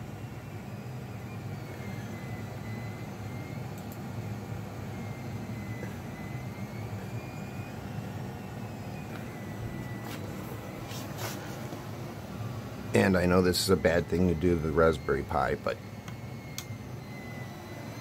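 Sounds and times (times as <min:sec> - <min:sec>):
faint wavering high tone: 0:04.3 - 0:18.0
narration: 0:12.9 - 0:15.8.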